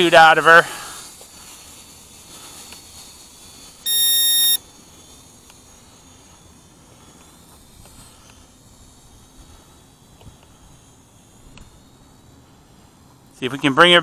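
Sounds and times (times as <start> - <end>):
faint steady hiss: 0.0 - 14.0
high electronic beep: 3.9 - 4.6.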